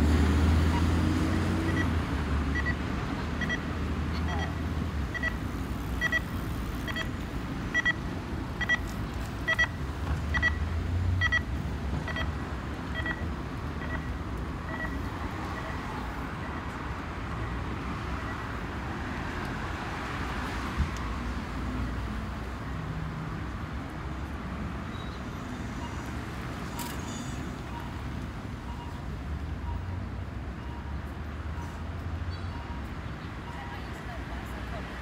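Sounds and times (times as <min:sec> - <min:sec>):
city traffic noise: 0:00.0 - 0:35.0
crossing signal beeping: 0:00.6 - 0:18.7, 0:24.9 - 0:31.8, 0:32.4 - 0:33.9.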